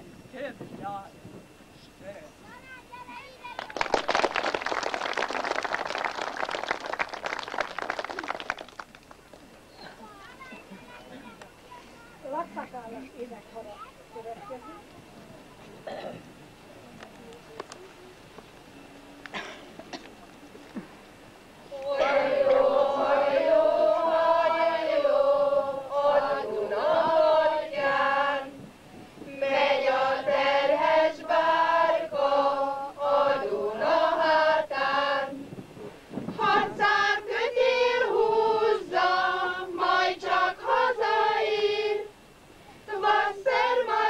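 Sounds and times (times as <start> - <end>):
choir of high voices singing: 21.7 - 28.7, 29.3 - 35.5, 36.3 - 42.2, 42.9 - 44.0.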